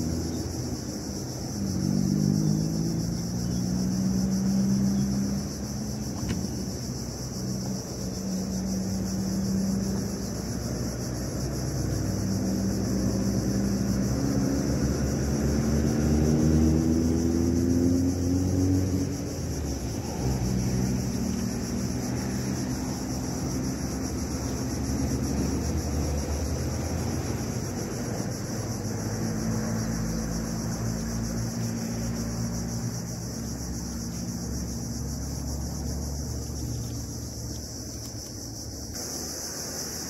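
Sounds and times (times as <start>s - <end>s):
engine drone: 0.0s - 40.0s.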